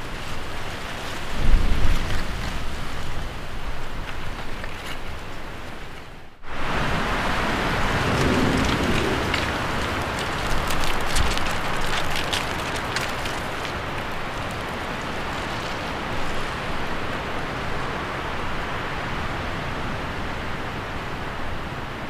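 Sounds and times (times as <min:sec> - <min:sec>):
steady rushing outdoor noise: 0:00.0 - 0:22.0
short crackles: 0:08.0 - 0:16.9.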